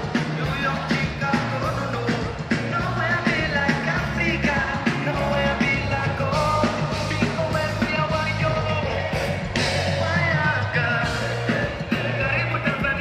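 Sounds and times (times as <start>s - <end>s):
live band playing: 0.0s - 13.0s
man singing into microphone: 0.0s - 13.0s.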